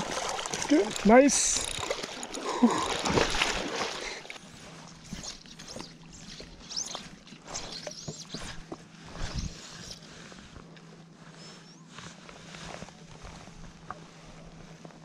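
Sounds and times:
water lapping against tube: 0.0s - 10.3s
fly line swishing: 5.0s - 10.1s.

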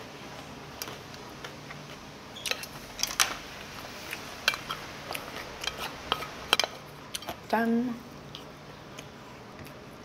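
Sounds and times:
low room hum: 0.0s - 10.0s.

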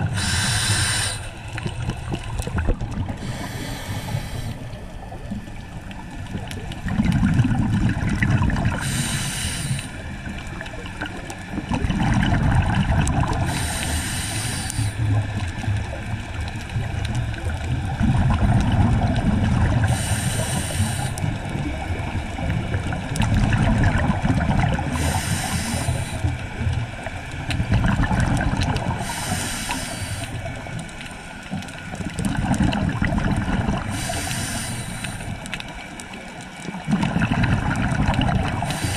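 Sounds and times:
regulator inhale hiss: 0.0s - 1.8s, 3.2s - 5.0s, 8.7s - 10.4s, 13.4s - 15.1s, 19.8s - 21.4s, 24.8s - 26.6s, 28.9s - 30.7s, 33.8s - 35.6s, 38.6s - 38.9s
low bubbling underwater: 0.0s - 9.1s, 10.3s - 13.8s, 14.9s - 20.1s, 21.2s - 29.2s, 31.6s - 34.1s, 36.6s - 38.9s.

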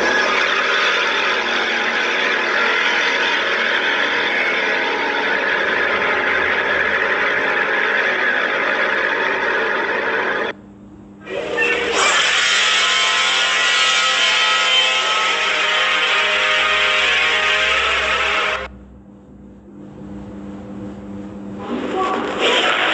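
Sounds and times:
distorted ghost voice effect: 21.6s - 22.9s.

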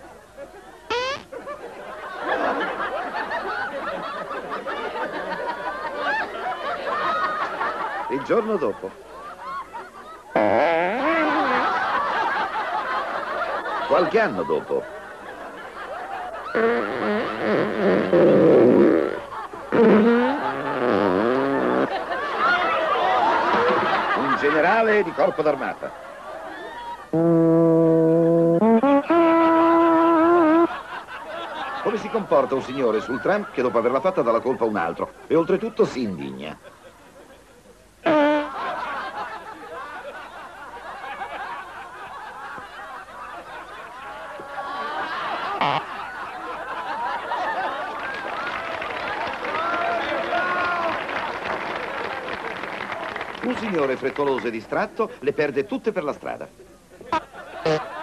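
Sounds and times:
audience laughing: 0.0s - 17.6s, 19.0s - 27.2s, 30.4s - 36.0s, 36.6s - 55.2s, 57.0s - 58.0s
comic fart sounds: 0.9s - 1.4s, 10.3s - 11.6s, 16.5s - 22.0s, 27.1s - 30.7s, 38.0s - 38.8s, 45.5s - 46.0s, 57.1s - 58.0s.

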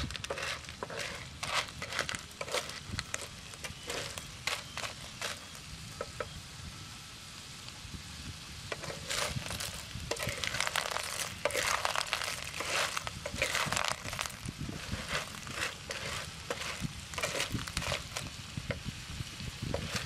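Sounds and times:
spatula scraping a pan: 0.0s - 5.6s, 8.7s - 18.4s, 19.7s - 20.0s
shellfish sizzling in a pan: 0.0s - 20.0s.

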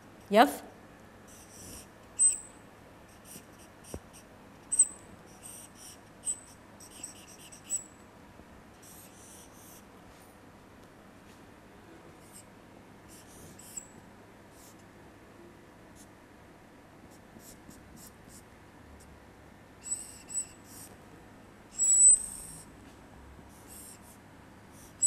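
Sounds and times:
marker squeaking on whiteboard: 1.3s - 2.5s, 3.1s - 7.9s, 8.8s - 9.8s, 13.1s - 13.9s, 19.8s - 20.9s, 21.8s - 22.7s, 23.6s - 24.2s.

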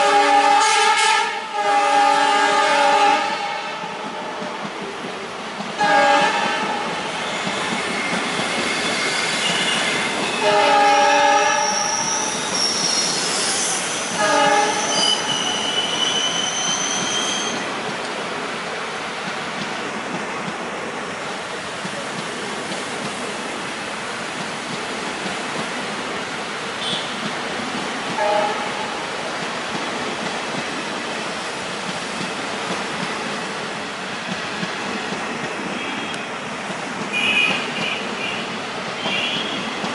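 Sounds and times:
locomotive horn blasts: 0.0s - 3.9s, 5.8s - 6.9s, 10.4s - 12.0s, 14.2s - 16.0s, 28.2s - 29.0s, 37.1s - 39.7s
train rumbling and clattering: 0.0s - 39.9s
high-pitched wheel squeal: 7.2s - 10.4s, 11.4s - 17.7s.

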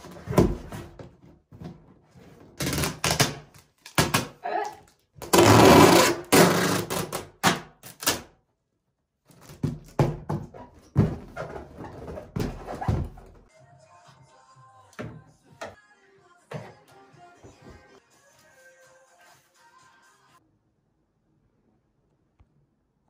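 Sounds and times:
cardboard flaps thumping: 0.1s - 1.9s, 9.5s - 13.4s
tape screeching off roll: 5.3s - 7.3s.

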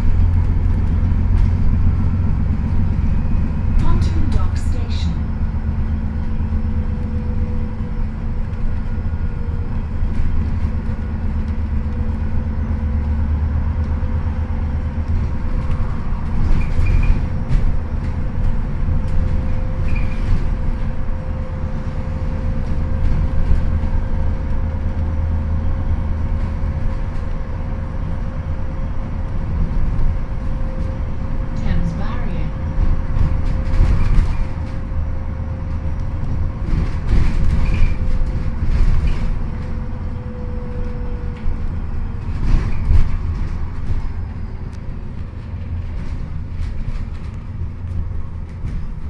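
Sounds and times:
bus engine and road rumble: 0.0s - 49.0s.

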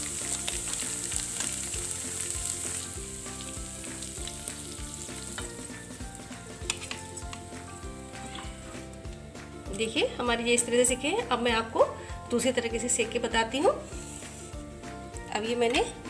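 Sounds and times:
cutlets sizzling in oil: 0.0s - 9.2s, 13.0s - 14.7s.

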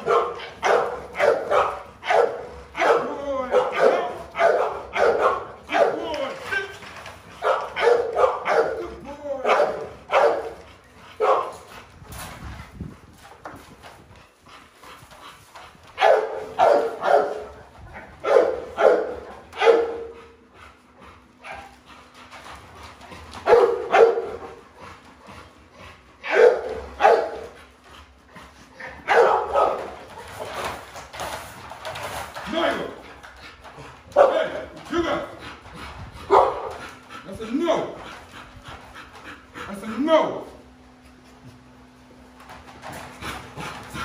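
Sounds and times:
dogs barking: 0.0s - 6.6s, 7.2s - 11.8s, 15.9s - 20.5s, 21.3s - 22.0s, 23.2s - 25.6s, 26.2s - 27.8s, 28.8s - 30.7s, 32.4s - 40.0s.

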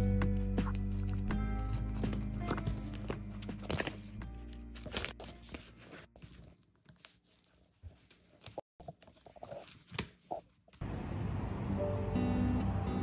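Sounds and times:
background music: 0.0s - 6.1s, 11.5s - 13.0s.

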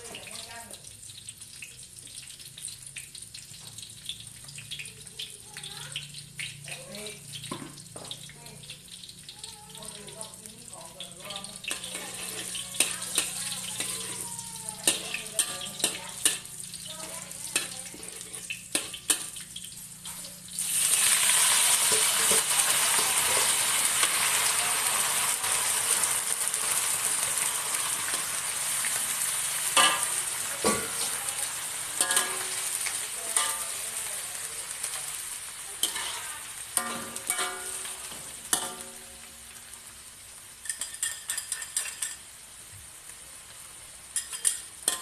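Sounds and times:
leaves sizzling in hot oil: 0.0s - 45.0s
metal spatula scraping in wok: 11.5s - 19.4s, 26.6s - 34.1s, 34.8s - 39.3s, 40.6s - 42.3s.

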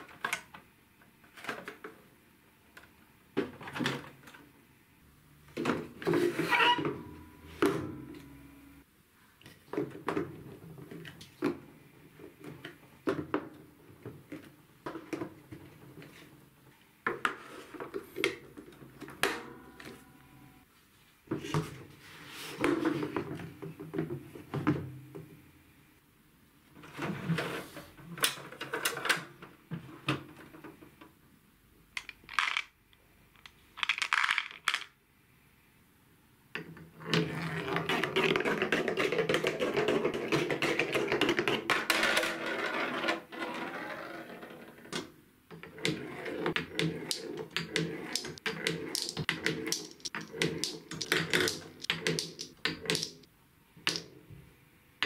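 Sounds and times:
plastic blocks clicking together: 32.0s - 32.8s, 33.4s - 35.0s, 45.8s - 54.1s
ball rolling on plastic track: 37.0s - 53.3s.

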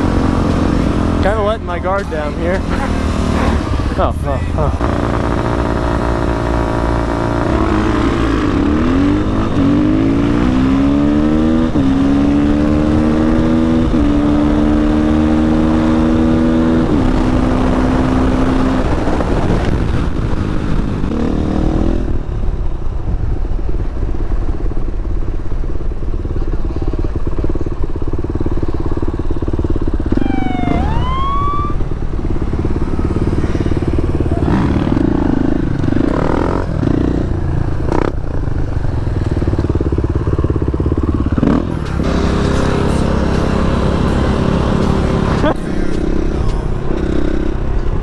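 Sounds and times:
motorcycle engine running: 0.0s - 48.0s
rising whistle-like tone: 30.2s - 31.9s.

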